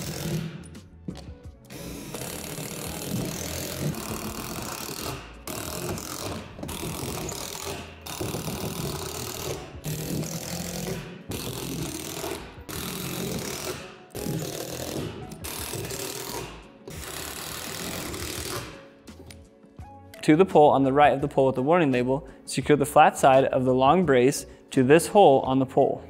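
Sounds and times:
impact driver rattling: 0:00.0 - 0:00.8, 0:01.7 - 0:18.8.

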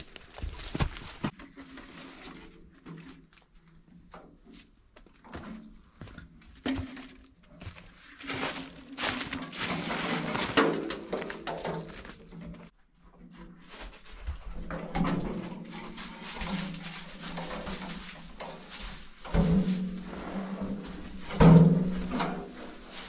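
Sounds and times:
footsteps on rubble and straw: 0:00.0 - 0:01.6, 0:04.6 - 0:12.7, 0:13.4 - 0:23.0
wooden planks scraping and knocking: 0:00.0 - 0:23.0.

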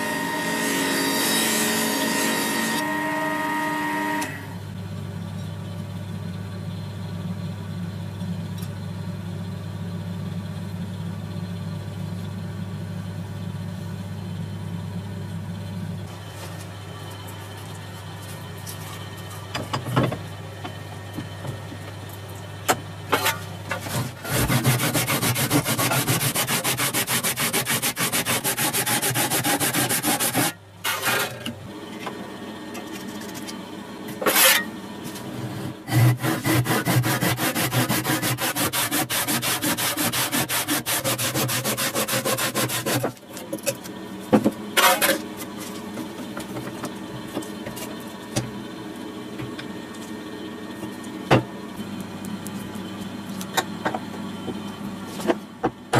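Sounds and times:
saw cutting branch: 0:24.2 - 0:31.3, 0:35.9 - 0:43.2.

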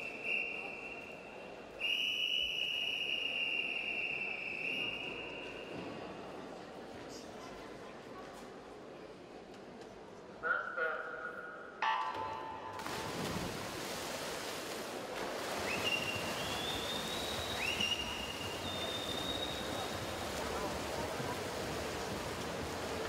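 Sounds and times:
shrill cheering whistles: 0:00.0 - 0:05.8, 0:15.6 - 0:20.1
swimmers splashing: 0:12.7 - 0:23.0.

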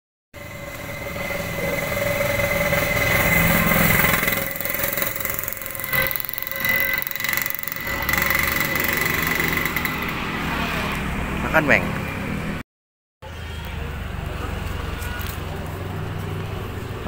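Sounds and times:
vehicle engine running: 0:00.4 - 0:12.4.

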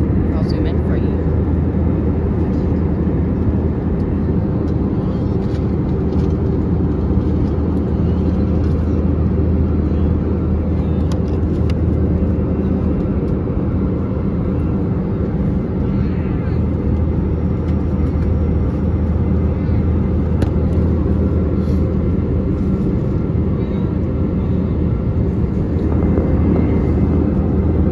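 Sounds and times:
deep cabin hum: 0:00.0 - 0:27.9
low airliner engine drone: 0:00.0 - 0:27.9
airflow rush: 0:16.6 - 0:27.9.

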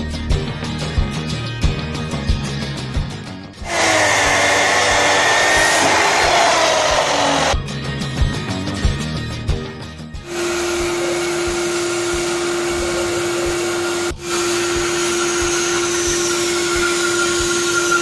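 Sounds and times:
background music with beat: 0:00.0 - 0:03.6, 0:06.5 - 0:10.3
bandsaw cutting wood: 0:03.6 - 0:07.6, 0:10.3 - 0:18.0.

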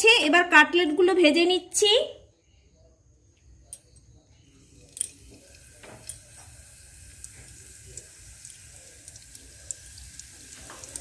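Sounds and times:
cutlets sizzling in hot oil: 0:04.6 - 0:11.0
oil crackling and popping: 0:04.7 - 0:11.0.

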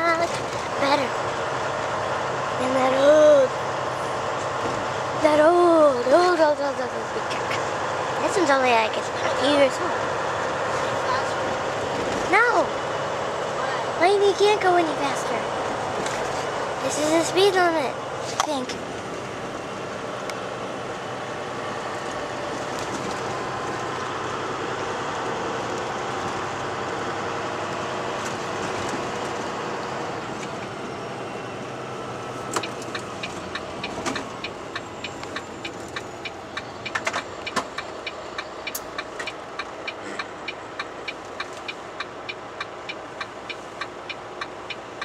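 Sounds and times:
diesel engine: 0:00.0 - 0:45.0
road noise: 0:00.0 - 0:45.0
turn signal ticking: 0:32.5 - 0:45.0.

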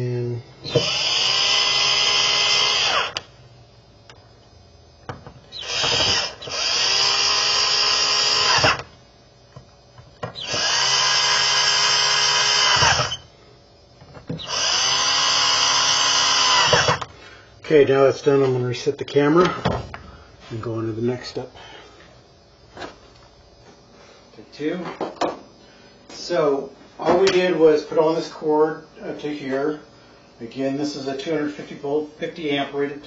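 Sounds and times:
power drill whirring: 0:00.6 - 0:03.2, 0:05.5 - 0:08.9, 0:10.3 - 0:13.3, 0:14.3 - 0:17.1.

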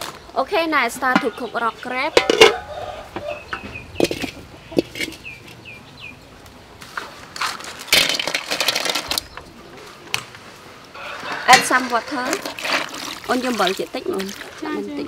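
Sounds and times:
bird chirping: 0:01.0 - 0:06.4
crabs clattering into wok: 0:07.9 - 0:09.2.

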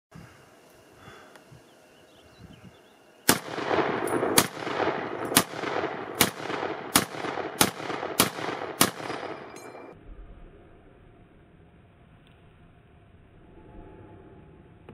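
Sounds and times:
rifle shots with echo: 0:03.3 - 0:10.0.

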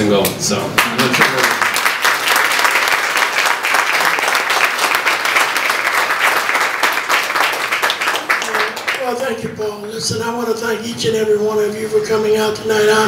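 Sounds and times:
audience clapping: 0:00.8 - 0:10.0.

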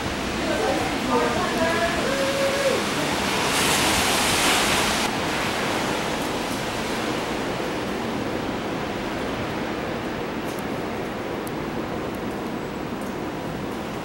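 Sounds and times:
rain hissing: 0:00.0 - 0:14.0.

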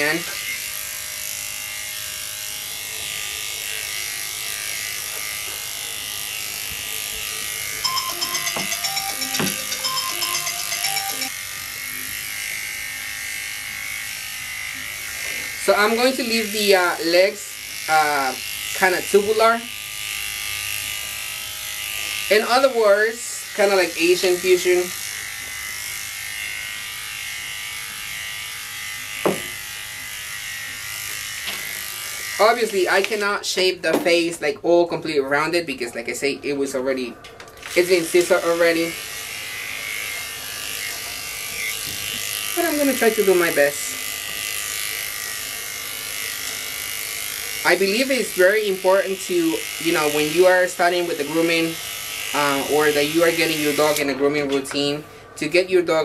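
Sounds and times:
electric dog clipper running: 0:00.0 - 0:34.0, 0:35.4 - 0:56.0
short musical notes with ticking beat: 0:07.8 - 0:11.3.

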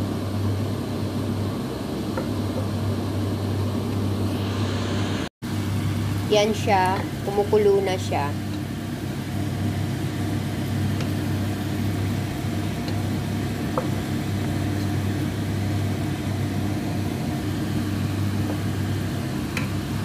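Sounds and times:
low mechanical hum: 0:00.0 - 0:20.0
sauce boiling in a pan: 0:05.5 - 0:20.0.

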